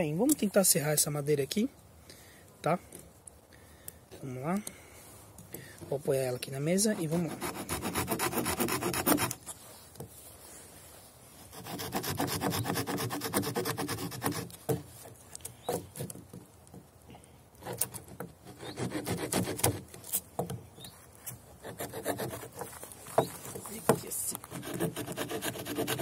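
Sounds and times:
saw cutting wood: 6.8 - 9.4, 11.5 - 14.6, 17.6 - 19.8, 21.6 - 22.7, 24.5 - 26.0.

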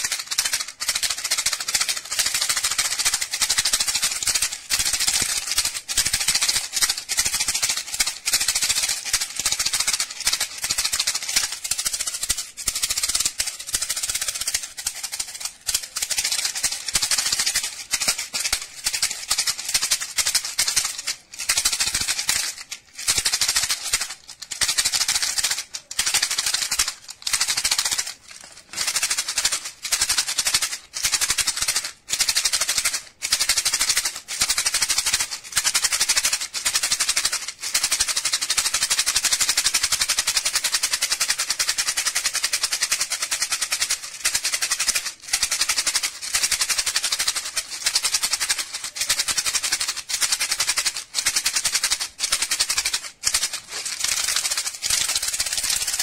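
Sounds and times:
seed pods rattling: 45.6 - 56.0.

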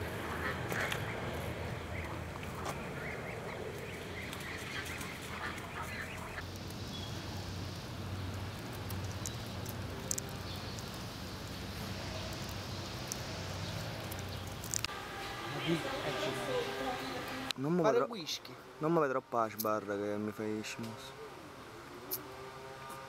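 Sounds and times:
flamingos honking: 0.0 - 6.4, 14.9 - 17.5.

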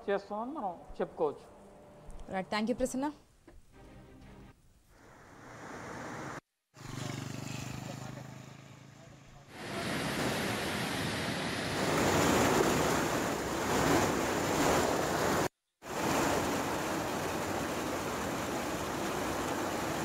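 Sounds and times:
floodwater rushing over weir: 9.5 - 20.0.

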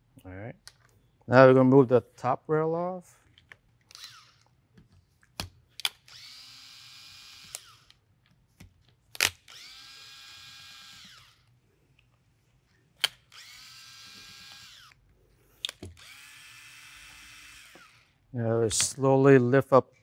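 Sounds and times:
electric screwdriver motor whine: 3.9 - 4.5, 6.0 - 7.9, 9.5 - 11.5, 13.3 - 15.0, 16.0 - 18.2.

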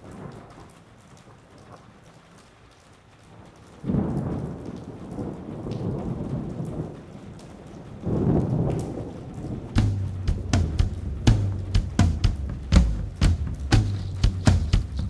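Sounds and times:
steady rain: 0.0 - 15.0
thunder rolling: 8.0 - 15.0.

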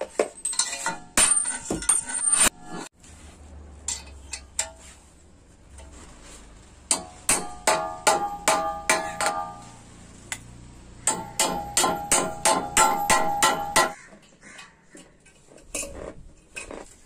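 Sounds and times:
hammer striking steel frame: 6.9 - 14.0.

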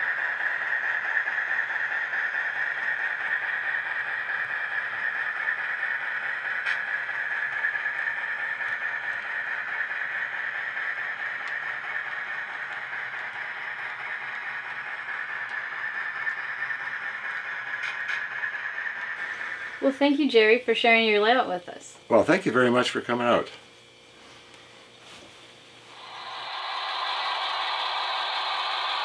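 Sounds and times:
model train wheels rattling on rails: 0.0 - 21.5, 25.9 - 29.0.

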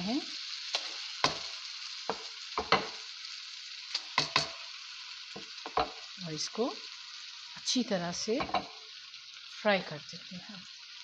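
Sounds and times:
food sizzling in hot oil: 0.0 - 11.0
spatula scraping and knocking pan: 0.7 - 3.0, 4.1 - 4.7, 5.4 - 6.0, 8.4 - 8.8.

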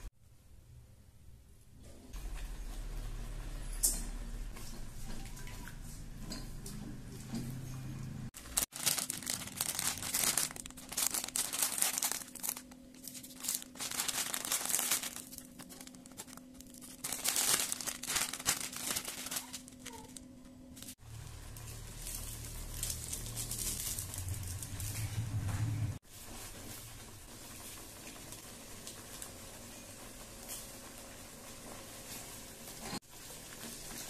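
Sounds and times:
plastic packets crinkling and tearing: 8.4 - 20.2, 21.8 - 24.9
wok rumbling on stove: 20.9 - 34.0.

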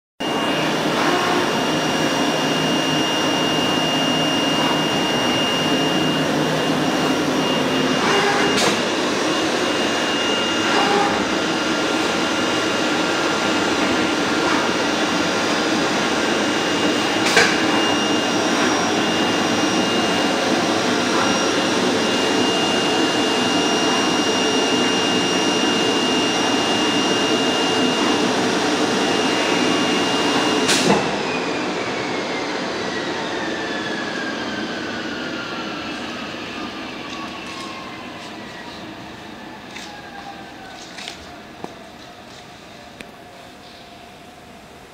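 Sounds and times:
thin high whine: 0.2 - 30.9
cutting machine whirring: 0.2 - 35.2.

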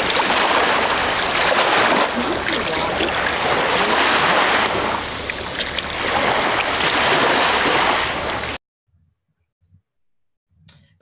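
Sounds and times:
ocean waves washing in and out: 0.0 - 8.6.

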